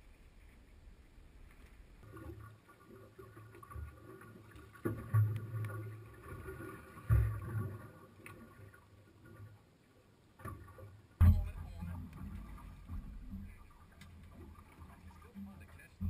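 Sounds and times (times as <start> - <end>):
loud low thumps: 11.2 - 12.1.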